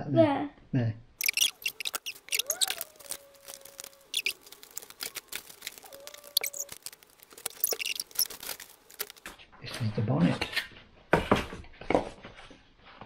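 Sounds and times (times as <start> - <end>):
cardboard clicks and crinkles: 1.2 - 9.4.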